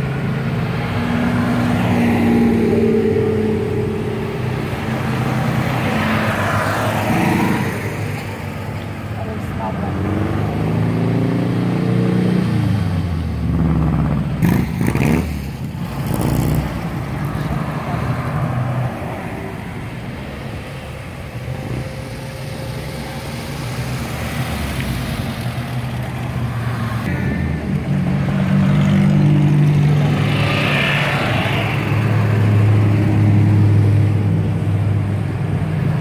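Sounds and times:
car engine passing by: 21.8s - 34.4s.

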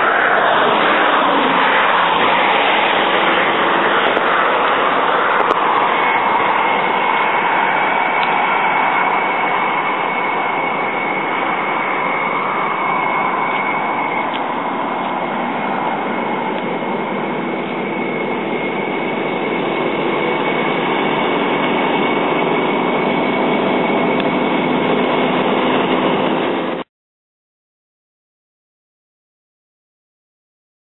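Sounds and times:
road traffic roar: 0.0s - 26.9s
thin high whine: 0.0s - 26.9s.

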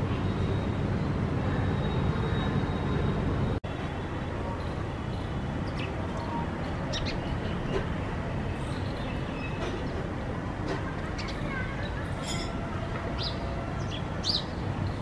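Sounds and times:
sparrow chirps: 4.6s - 7.8s.

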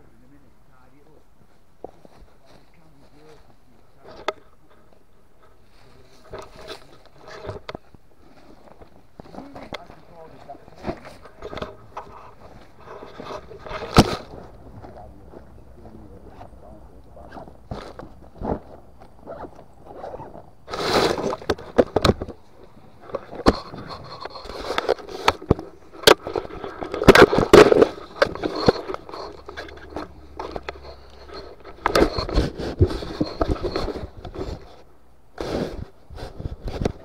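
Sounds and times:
scraping and crackling in undergrowth: 0.1s - 37.0s
sharp clicks and knocks: 23.0s - 34.6s.

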